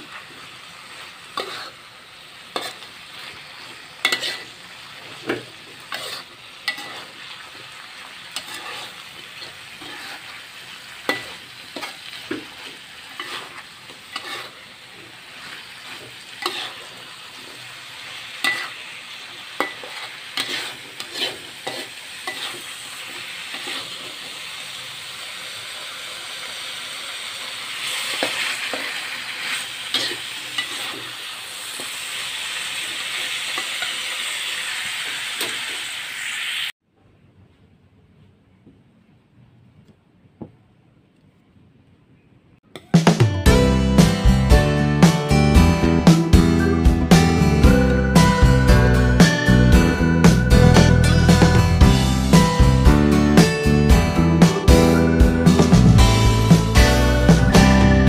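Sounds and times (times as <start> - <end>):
food sizzling: 0.0 - 36.8, 43.0 - 58.0
metal spatula scraping a wok: 1.2 - 1.9, 2.5 - 7.5, 8.3 - 24.3, 27.8 - 36.4.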